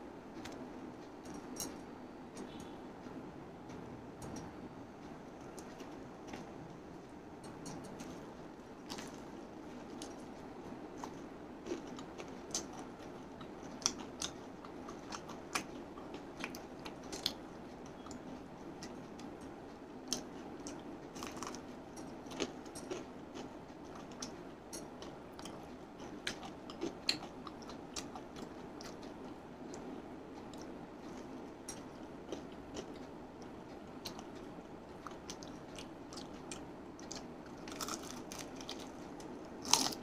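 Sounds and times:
low background noise: 0.0s - 40.0s
person chewing crispy chicken: 8.8s - 17.4s, 20.1s - 29.9s, 30.5s - 40.0s.

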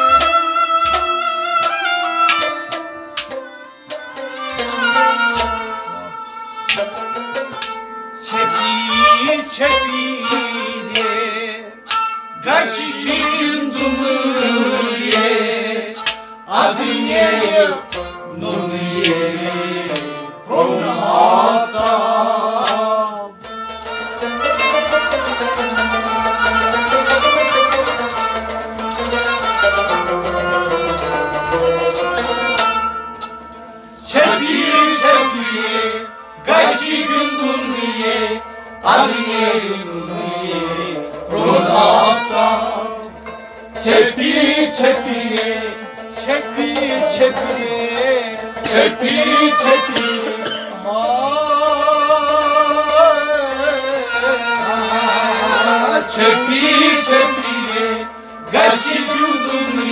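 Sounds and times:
men singing: 8.2s - 11.8s, 12.4s - 23.4s, 34.0s - 43.2s, 43.8s - 59.9s.

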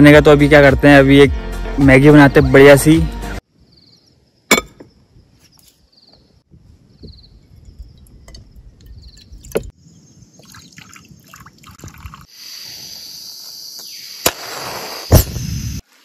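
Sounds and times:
steady hiss: 12.2s - 16.0s.

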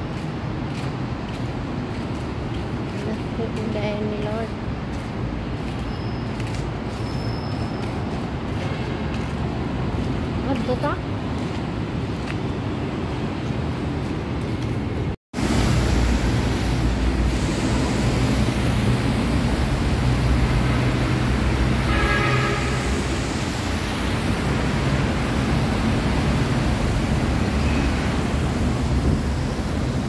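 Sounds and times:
city street traffic: 0.0s - 30.0s
fountain spray rushing: 15.4s - 30.0s
short horn-like tone: 21.9s - 23.2s.

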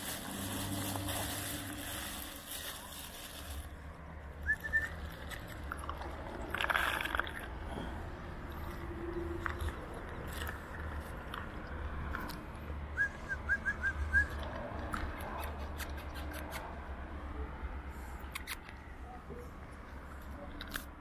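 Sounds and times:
dog chewing and crunching food: 0.0s - 3.8s, 4.4s - 7.7s, 8.5s - 12.5s.

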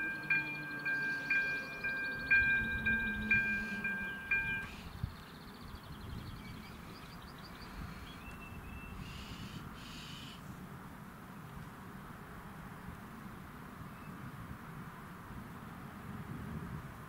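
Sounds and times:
electronic warning bell: 0.0s - 4.8s
faint outdoor noise: 0.0s - 17.0s.

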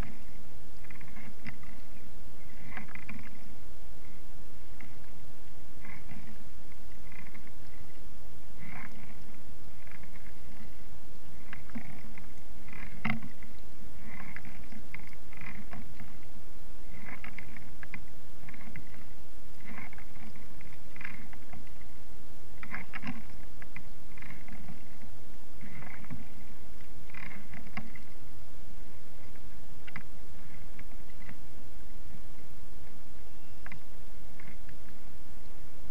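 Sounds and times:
low rumble: 0.0s - 35.9s
paddle strokes splashing water: 8.6s - 21.9s.

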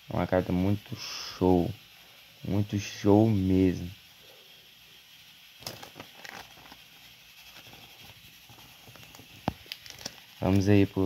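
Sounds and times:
cards rustling: 5.6s - 6.8s, 7.6s - 10.8s.

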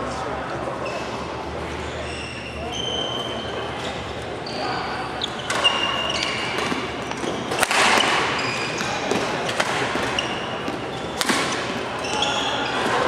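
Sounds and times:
shoes squeaking on floor: 0.8s - 13.0s
racket striking shuttlecock: 5.5s - 11.8s.

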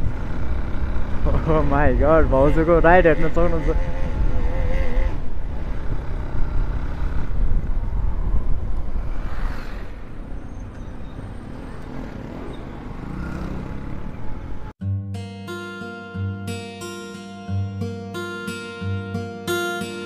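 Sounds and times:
motorcycle engine: 0.0s - 14.7s
truck passing: 0.0s - 14.8s
wind rumble: 3.7s - 11.8s.

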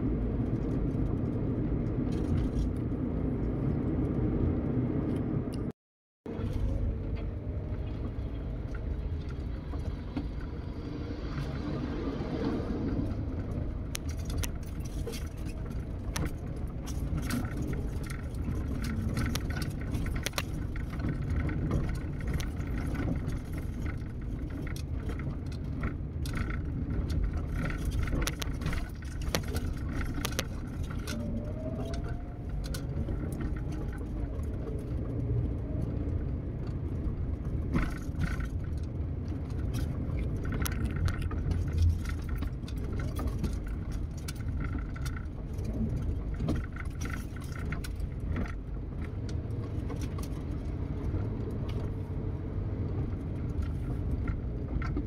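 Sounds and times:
tyres and engine rumbling: 0.0s - 55.0s
car clicks and rattles: 12.7s - 55.0s.

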